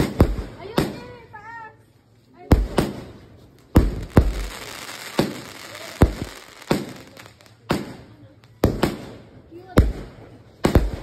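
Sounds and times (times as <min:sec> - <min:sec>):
fireworks bangs: 0:00.0 - 0:01.4, 0:02.5 - 0:11.0
fireworks hiss: 0:02.6 - 0:09.3.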